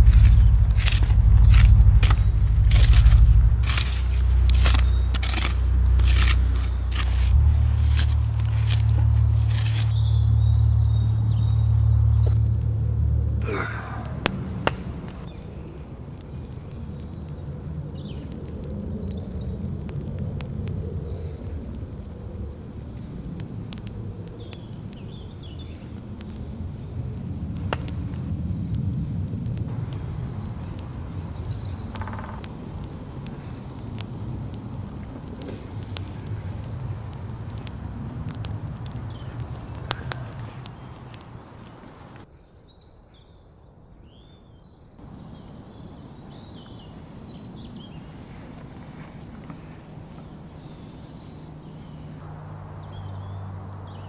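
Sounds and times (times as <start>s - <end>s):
birds chirping: 0.0s - 19.7s, 23.8s - 54.0s
fire flaring whoosh: 0.0s - 42.2s, 45.0s - 52.6s
fire crackling pops: 0.0s - 42.3s, 45.0s - 54.0s
low rumble: 0.0s - 42.3s
sharp clicks and snaps: 12.1s - 42.3s.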